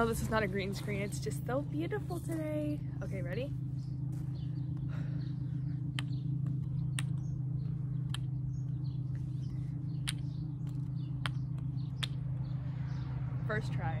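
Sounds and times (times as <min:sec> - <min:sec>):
steady low hum: 0:00.0 - 0:14.0
wooden kendama clacking: 0:10.0 - 0:10.3, 0:12.0 - 0:12.2.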